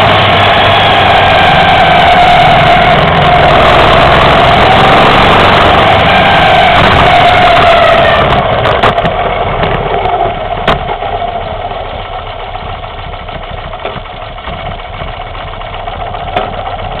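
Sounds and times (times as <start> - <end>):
motorcycle engine idling: 8.4 - 17.0.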